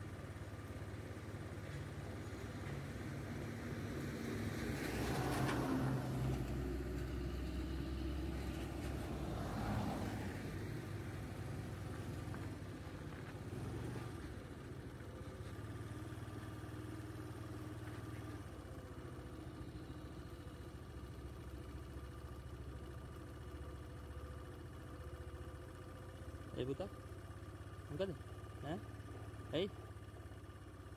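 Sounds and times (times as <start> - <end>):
vehicle engine idling: 0.0 - 30.9
bus passing: 1.6 - 21.4
vehicle passing: 2.8 - 14.3.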